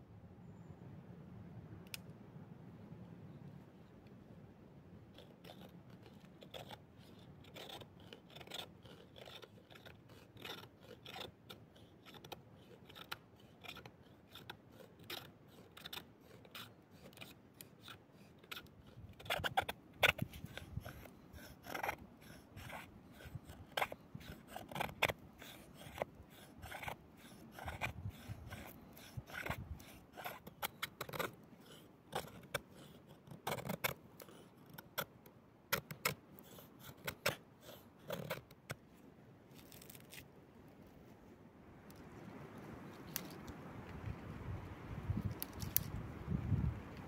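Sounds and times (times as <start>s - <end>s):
short cutting or scraping strokes: 5.1s - 35.1s, 35.7s - 40.3s.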